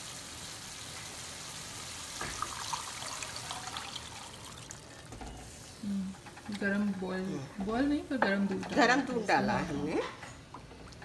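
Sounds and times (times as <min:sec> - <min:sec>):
gravy sizzling: 0:00.0 - 0:11.0
milk pouring into pan: 0:02.1 - 0:05.2
wooden spoon stirring: 0:05.1 - 0:11.0.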